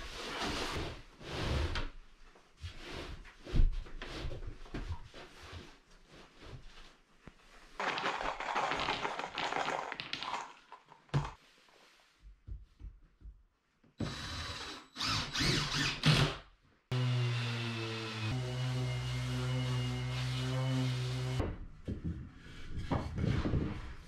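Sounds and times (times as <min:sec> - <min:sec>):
scraping and knocking of board: 0:21.8 - 0:24.0.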